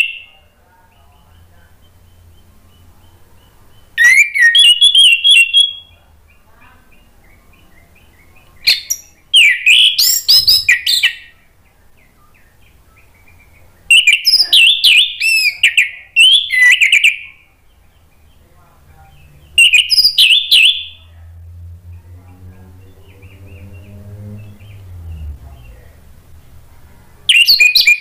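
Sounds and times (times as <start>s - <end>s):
thrush singing whistled song: 0.0s - 0.4s, 1.2s - 18.4s, 19.2s - 21.2s, 27.3s - 28.0s
soft bird twittering: 0.0s - 28.0s.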